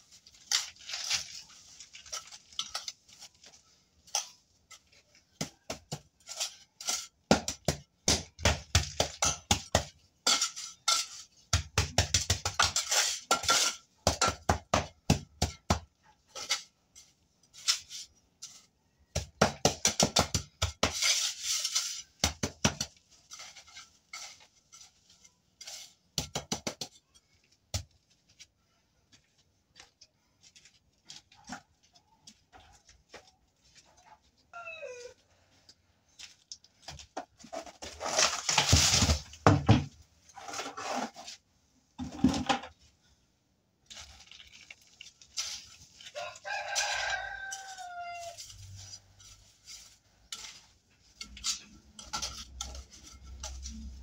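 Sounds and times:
trowel scraping sand on concrete: 6.0s - 7.7s, 9.6s - 14.0s, 16.3s - 18.8s, 20.0s - 26.3s, 40.3s - 41.5s.

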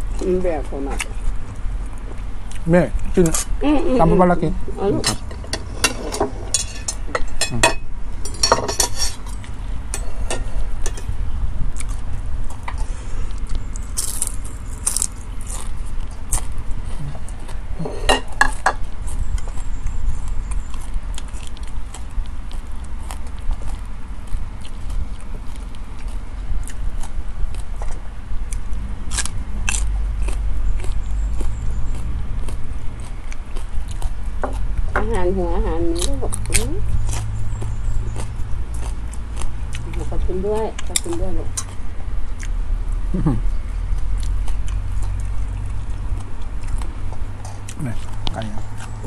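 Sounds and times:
chewing: 0.0s - 3.5s, 8.2s - 49.0s
steady low rumble: 0.0s - 49.0s
spoon scraping a bowl: 5.0s - 11.1s.

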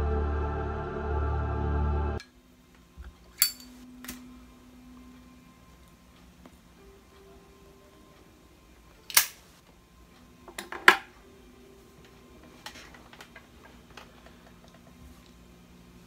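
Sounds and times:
pipe lighter clacks: 9.1s - 9.4s.

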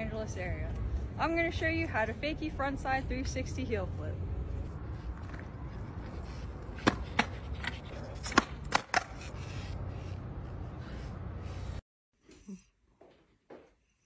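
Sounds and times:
skateboard clacking on concrete: 6.2s - 9.5s.

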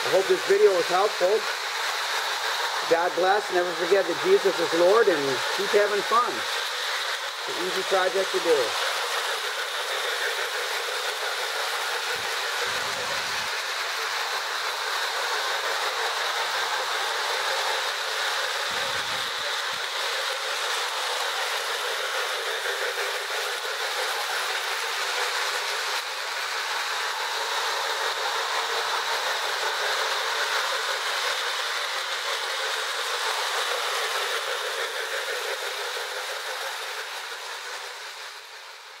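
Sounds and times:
toy trains whirring on track: 0.0s - 39.0s.

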